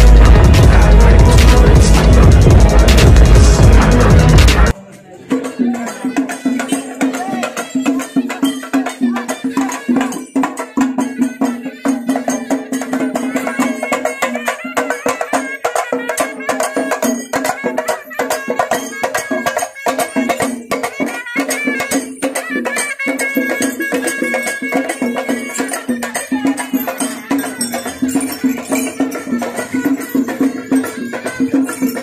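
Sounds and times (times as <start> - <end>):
rapid dense drumming: 0.0 - 4.7
wind instrument melody: 0.0 - 4.8, 5.5 - 32.0.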